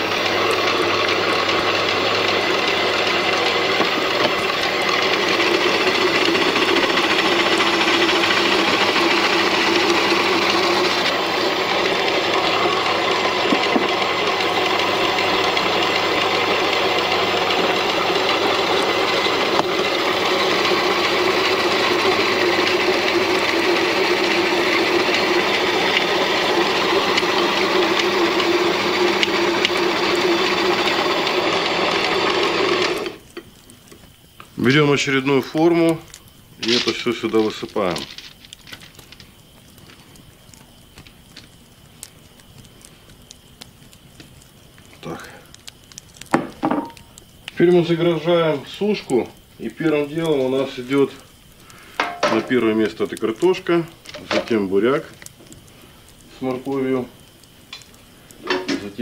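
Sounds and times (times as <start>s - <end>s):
electric vegetable chopper whirring: 0.0s - 33.4s.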